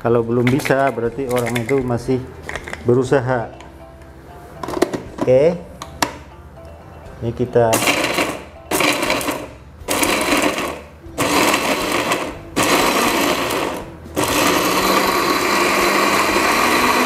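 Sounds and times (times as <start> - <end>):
electric blender grinding: 7.8 - 17.0.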